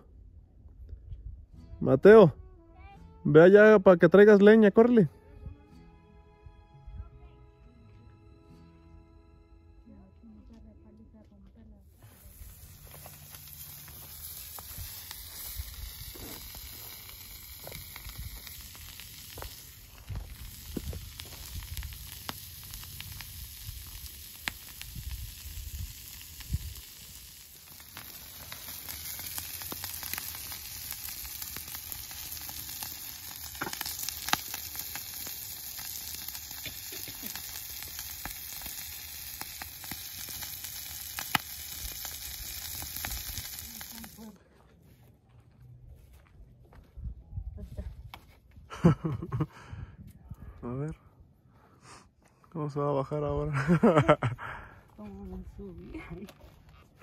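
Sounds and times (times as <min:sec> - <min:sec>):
sausage sizzling on a griddle: 0:12.0 - 0:44.3
sharp pops and crackles: 0:12.2 - 0:44.4.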